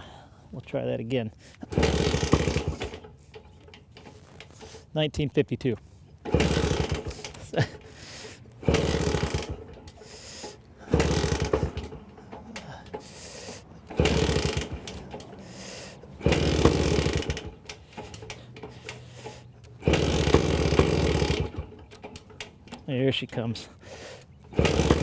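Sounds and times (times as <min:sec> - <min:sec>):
motorcycle engine turning over: 0:01.6 - 0:04.9, 0:06.2 - 0:23.1, 0:24.3 - 0:25.0.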